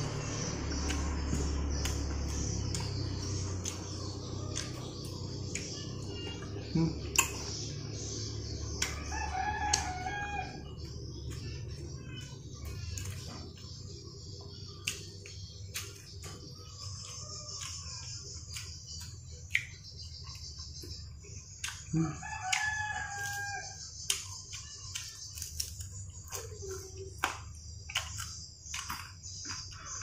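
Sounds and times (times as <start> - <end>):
clicks and smacks from eating: 0.7 - 10.0, 10.9 - 30.0
rooster crowing: 8.8 - 10.8, 21.9 - 23.9.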